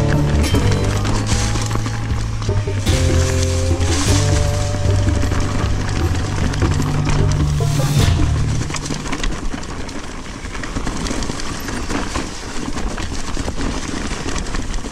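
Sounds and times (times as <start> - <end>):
background music with bass: 0.0 - 9.0
bike tyres rolling and rattling: 0.0 - 14.9.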